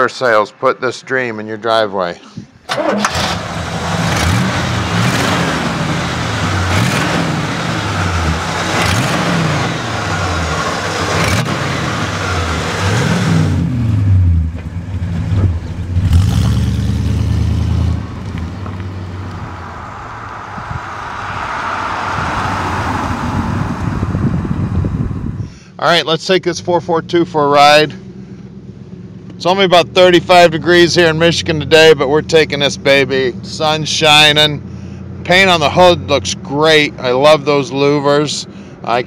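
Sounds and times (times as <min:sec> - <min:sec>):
car engine revving: 0:02.6 - 0:25.6
car driving by: 0:02.7 - 0:25.6.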